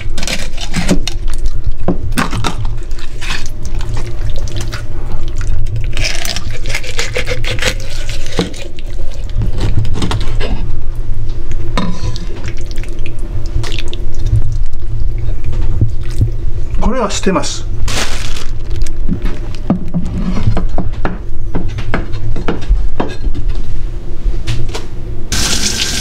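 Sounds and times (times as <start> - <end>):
low hum: 0.0 - 26.0
knife scraping: 6.1 - 8.7.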